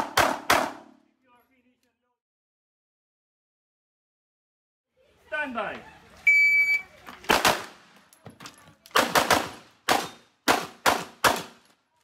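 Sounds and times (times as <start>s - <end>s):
pistol shots: 0.0s - 0.9s, 7.3s - 7.8s, 8.9s - 11.6s.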